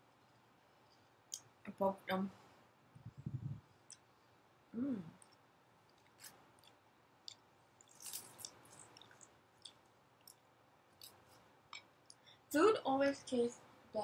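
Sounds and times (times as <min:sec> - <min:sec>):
person chewing: 0:05.1 - 0:12.2.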